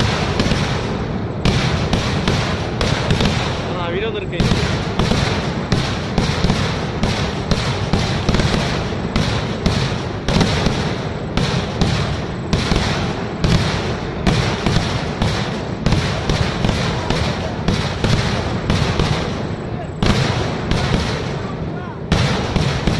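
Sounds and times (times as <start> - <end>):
fireworks bangs: 0.0 - 22.9
fireworks crackling: 0.0 - 22.9.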